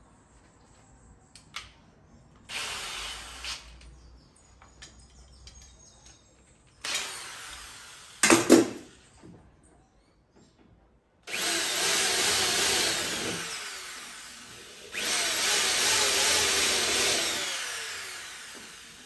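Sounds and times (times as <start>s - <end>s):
drill boring into sheet metal: 2.5s - 3.7s, 6.8s - 8.6s, 11.3s - 19.0s.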